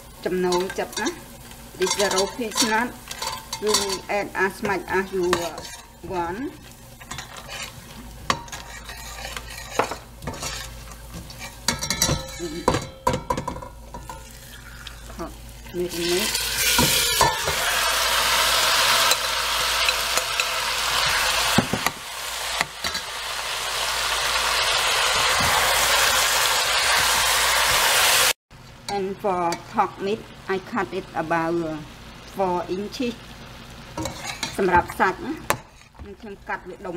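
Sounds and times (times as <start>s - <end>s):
metal spoon scraping a pot: 1.8s - 6.2s, 7.0s - 12.9s, 34.0s - 34.6s
meat sizzling in hot oil: 13.8s - 28.4s.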